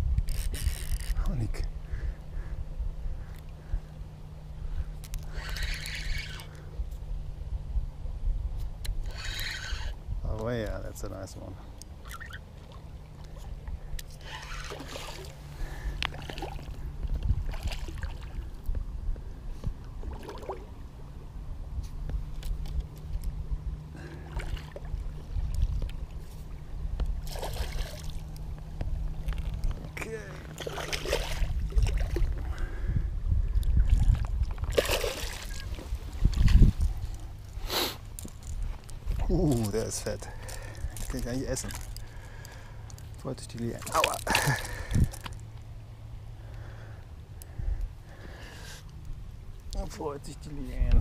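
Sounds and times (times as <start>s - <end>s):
fishing gear clicks and scrapes: 0.2s - 1.3s, 5.0s - 6.5s, 8.9s - 10.0s, 14.0s - 15.2s, 38.0s - 45.5s
water splashing and sloshing: 11.8s - 18.8s, 19.8s - 21.0s, 22.2s - 32.8s, 33.4s - 45.7s
wind buffeting microphone: 16.7s - 20.2s, 28.5s - 37.3s, 50.7s - 51.0s.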